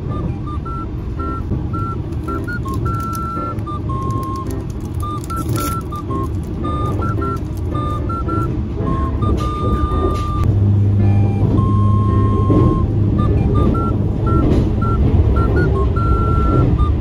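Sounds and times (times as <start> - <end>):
beep-like melody: 0.0 - 17.0
train running rumble inside carriage: 0.0 - 17.0
snack wrapper crinkling and tearing: 2.1 - 7.8.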